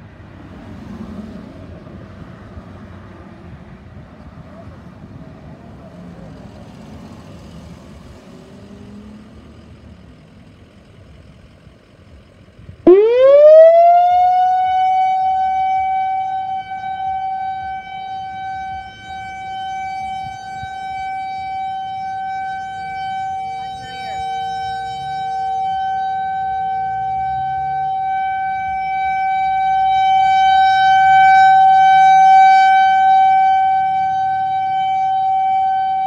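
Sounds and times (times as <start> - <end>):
outdoor warning siren: 12.8 - 36.0.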